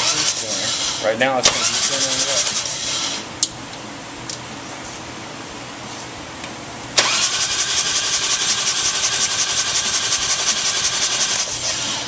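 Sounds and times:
motorcycle engine cranking: 7.0 - 11.8.

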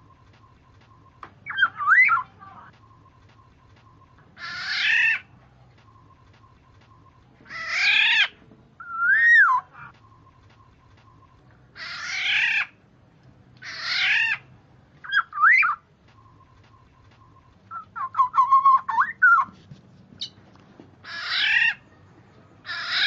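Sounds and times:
bird harsh rasping calls: 4.3 - 5.3, 7.4 - 10.4, 11.1 - 12.8, 13.6 - 19.5, 21.0 - 21.8, 22.6 - 23.0
bird fluty whistle: 8.8 - 11.3, 15.1 - 19.5.

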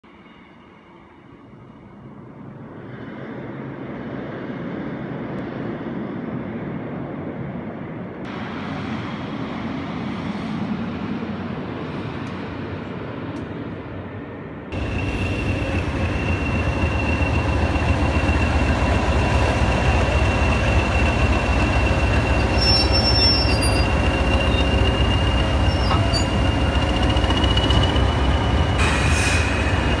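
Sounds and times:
diesel locomotive engine rumbling: 8.3 - 30.0
high turbo whistle: 14.8 - 30.0.

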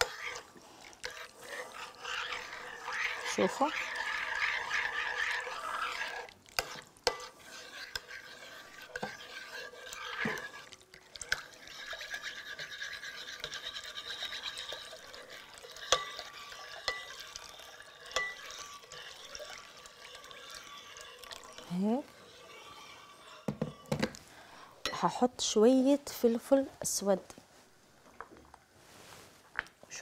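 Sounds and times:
liquid pouring into bowl: 0.0 - 24.6
metal spoon stirring: 0.0 - 25.6
spoon clinking against bowl: 15.9 - 18.6.

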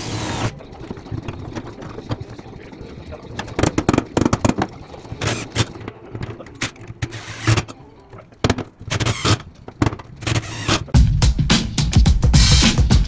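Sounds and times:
handling knocks and clatter: 0.0 - 11.0
cordless drill driving screws: 8.9 - 9.5, 10.2 - 10.9.

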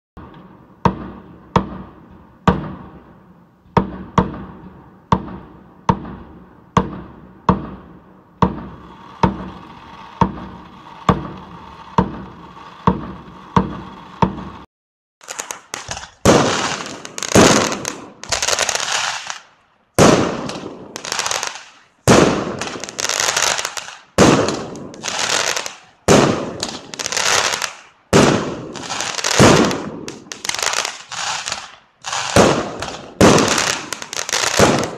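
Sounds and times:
fireworks bangs with echo: 0.2 - 34.9
crackling firework bursts: 8.4 - 34.9.

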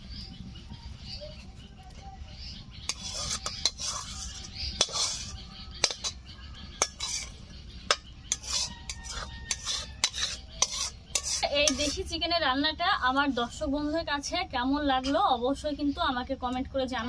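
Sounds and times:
metal spoon scraping cookware: 2.8 - 12.1.

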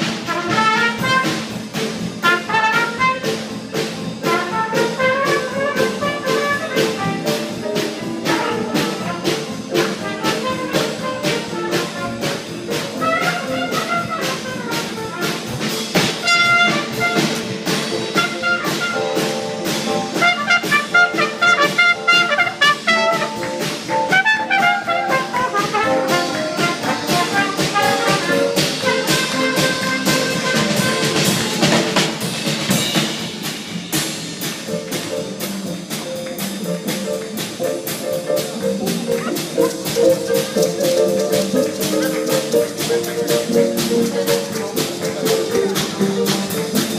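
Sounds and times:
trumpet: 0.0 - 32.9
drum beat: 0.0 - 46.9
jazz band playing: 0.0 - 46.9.

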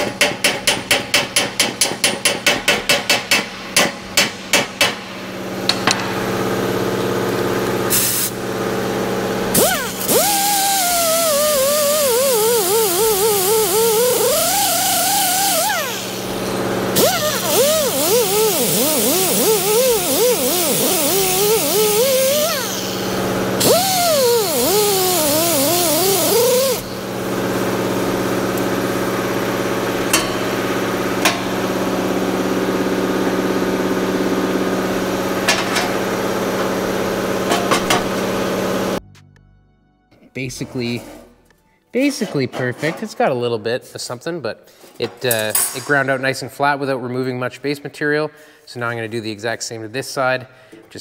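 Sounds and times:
die grinder grinding metal: 9.6 - 27.0.

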